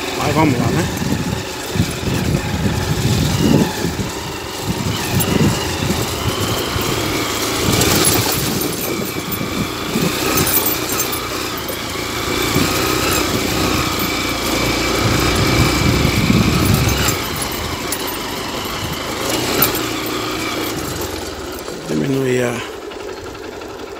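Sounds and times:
motorcycle engine running: 0:00.0 - 0:23.9.

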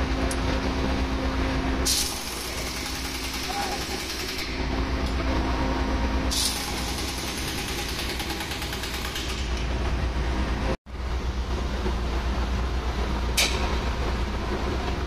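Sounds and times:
machinery drone: 0:00.0 - 0:08.2
pneumatic impact wrench rattle: 0:01.9 - 0:04.6, 0:06.3 - 0:09.6.

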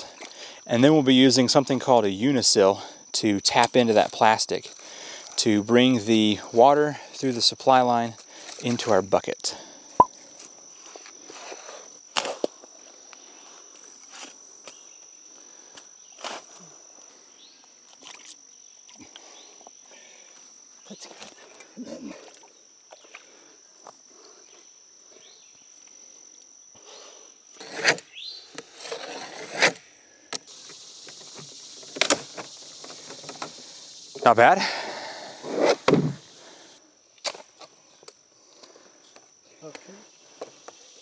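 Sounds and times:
insect drone: 0:00.0 - 0:41.0
loud thumps: 0:35.5 - 0:36.2.

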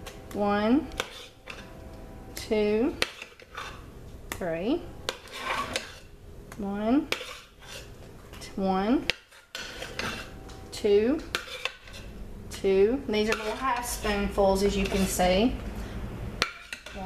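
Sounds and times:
metal spoon scraping and clinking: 0:00.9 - 0:01.8, 0:03.0 - 0:03.9, 0:05.0 - 0:06.1, 0:07.1 - 0:07.9, 0:09.1 - 0:10.6, 0:11.2 - 0:12.1, 0:13.2 - 0:15.4, 0:16.4 - 0:17.0.

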